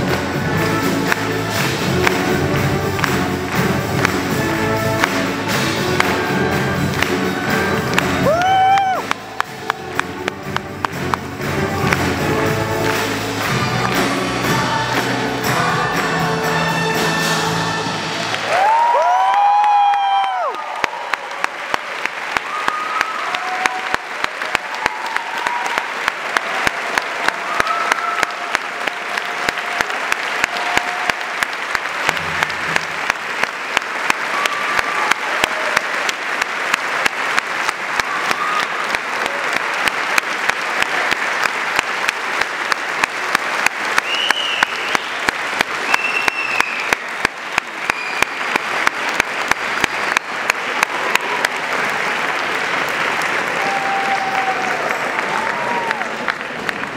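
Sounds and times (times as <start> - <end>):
audience applauding: 0.0 - 56.9
shouts and whoops of cheering: 8.2 - 9.2, 18.3 - 21.6, 22.3 - 31.4, 34.1 - 36.0, 38.0 - 39.6, 53.4 - 56.4.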